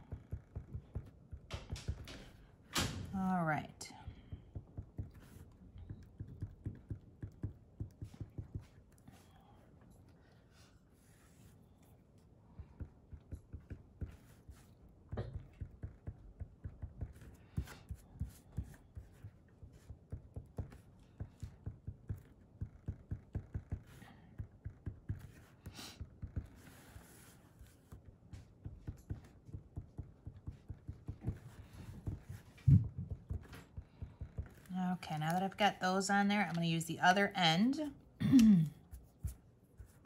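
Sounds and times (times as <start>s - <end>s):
felt pen tapping on paper: 0.0s - 2.3s, 4.2s - 8.8s, 12.6s - 26.7s, 27.8s - 34.7s.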